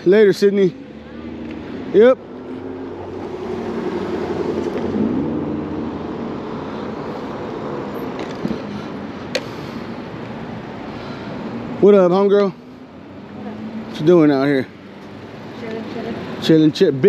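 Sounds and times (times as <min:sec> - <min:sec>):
steady traffic: 0:00.0 - 0:17.0
car driving past: 0:00.7 - 0:08.9.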